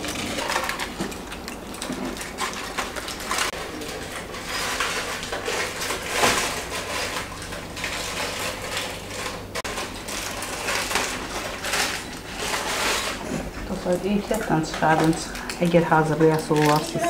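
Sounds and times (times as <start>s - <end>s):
aluminium foil crinkling: 0.0s - 17.0s.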